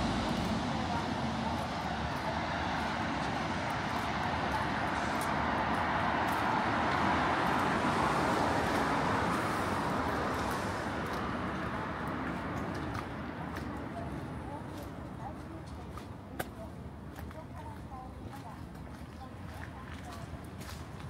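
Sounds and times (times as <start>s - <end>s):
tyres hissing on wet road: 0.0s - 13.2s
road traffic: 0.0s - 21.0s.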